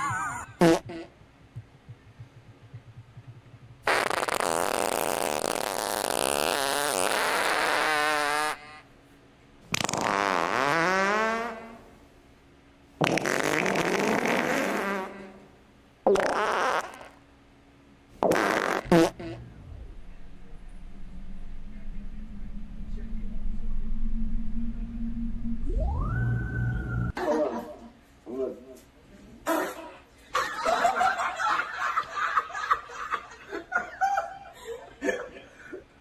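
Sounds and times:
fart noises: 0.0s - 1.2s, 3.8s - 8.9s, 9.7s - 11.9s, 13.0s - 17.2s, 18.2s - 20.0s.

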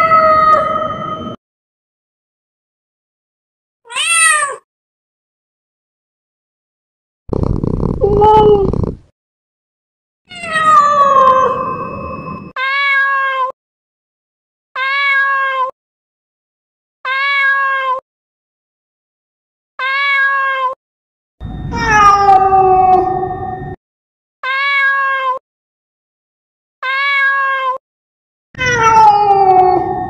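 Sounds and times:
cat meowing: 3.9s - 4.6s, 7.3s - 9.0s, 10.3s - 11.6s, 12.6s - 13.5s, 14.8s - 15.7s, 17.1s - 18.0s, 19.8s - 20.8s, 21.7s - 23.2s, 24.4s - 25.4s, 26.8s - 27.8s, 28.6s - 30.0s.

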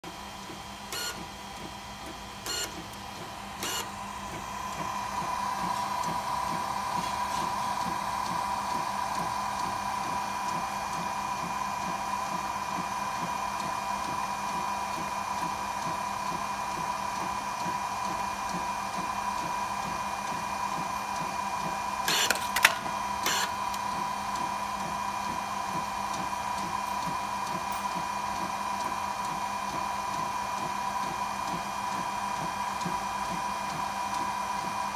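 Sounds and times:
printer whirring: 0.0s - 34.9s
printer clicks: 22.1s - 23.9s.

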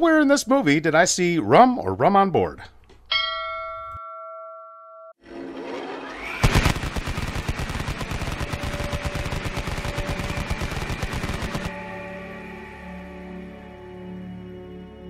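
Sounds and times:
short rising sound: 5.2s - 12.1s
machine-gun fire: 6.3s - 11.8s
faint ambient music: 8.5s - 15.0s.

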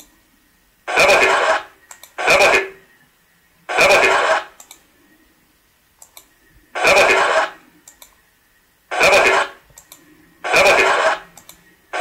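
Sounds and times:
faint clicks: 0.0s - 0.2s, 1.8s - 2.2s, 4.6s - 5.0s, 6.0s - 6.6s, 7.8s - 8.3s, 9.6s - 10.3s, 11.3s - 11.8s.

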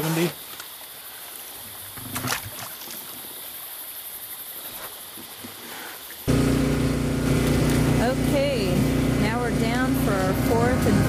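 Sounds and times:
boat engine humming: 6.3s - 11.0s.

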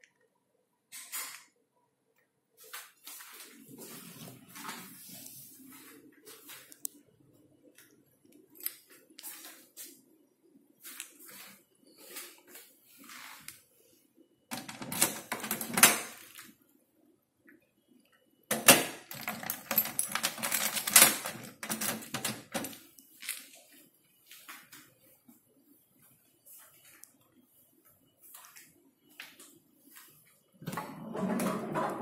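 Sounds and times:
metal locker clattering: 14.5s - 16.3s, 18.5s - 22.8s
key rattling in a lock: 18.5s - 22.8s
keys jangling: 19.1s - 22.8s.

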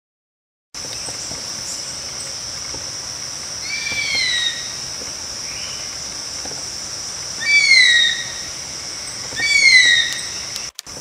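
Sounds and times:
high insect drone: 0.8s - 11.0s
bird whistled cry: 9.4s - 10.5s.

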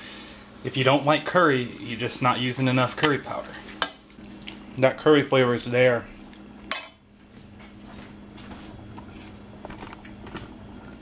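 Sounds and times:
sauce sizzling in pan: 0.0s - 4.8s
spoon clinking on skillet: 6.7s - 7.0s.

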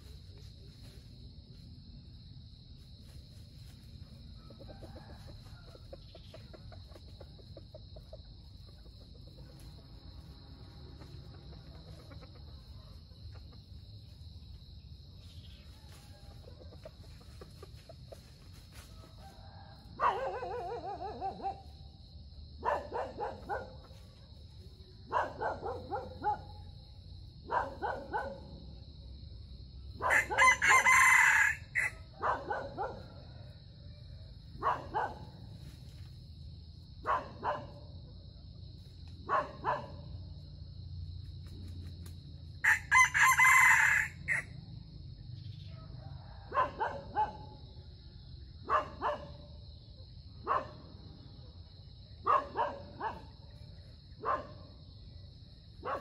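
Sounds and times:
crickets droning: 0.0s - 56.0s
rooster crowing: 4.2s - 6.4s, 18.8s - 21.5s, 30.0s - 34.2s, 42.6s - 44.6s, 45.6s - 47.4s.

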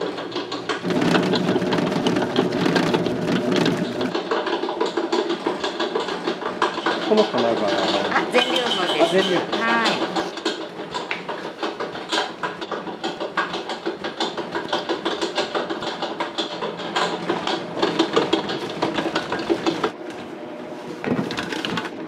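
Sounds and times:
mesh sieve and bowl clattering: 0.0s - 10.6s.

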